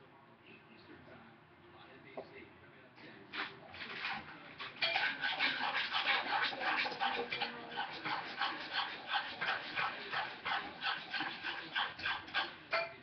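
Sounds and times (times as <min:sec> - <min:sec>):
dog panting: 0:04.8 - 0:12.6.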